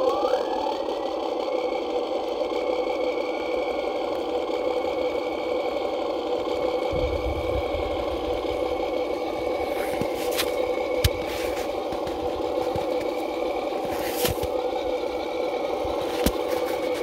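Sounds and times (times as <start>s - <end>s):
toy truck motor and gear whine: 0.0s - 17.0s.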